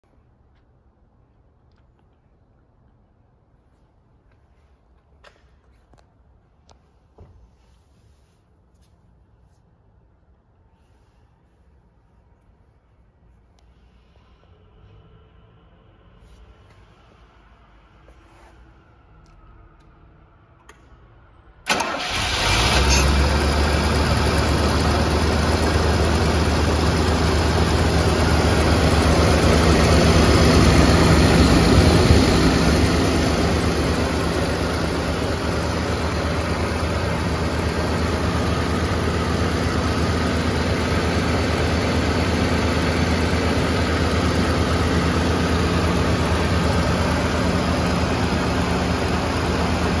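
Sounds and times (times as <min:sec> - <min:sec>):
car engine starting and idling: 0:19.2 - 0:50.0.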